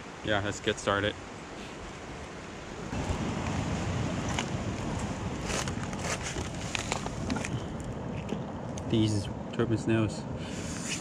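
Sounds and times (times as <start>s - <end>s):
wind buffeting microphone: 2.7s - 8.7s.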